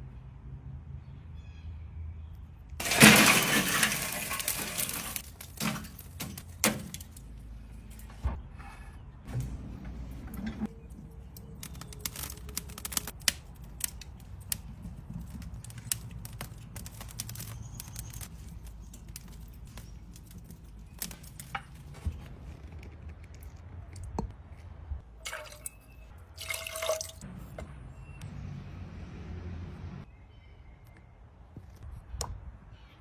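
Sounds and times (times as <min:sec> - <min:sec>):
liquid pouring into steel bowl: 0:25.2 - 0:27.2.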